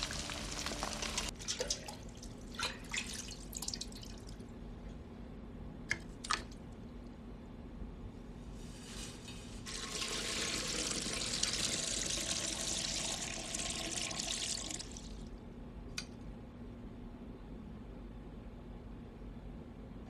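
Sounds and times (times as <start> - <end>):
hot liquid pouring and splashing: 0.0 - 4.3, 9.6 - 15.2
low steady hum: 0.0 - 20.0.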